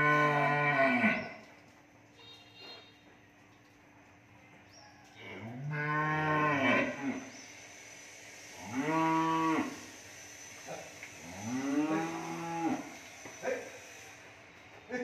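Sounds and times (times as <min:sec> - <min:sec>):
cattle mooing: 0:00.0 - 0:01.3, 0:05.3 - 0:07.3, 0:08.7 - 0:09.8, 0:11.2 - 0:13.0.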